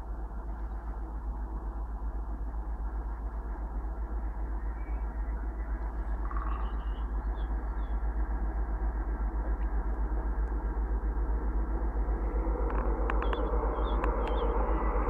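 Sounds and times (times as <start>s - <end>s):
diesel locomotive engine throbbing: 0.0s - 15.0s
faint bird chirps: 3.2s - 8.3s, 13.1s - 15.0s.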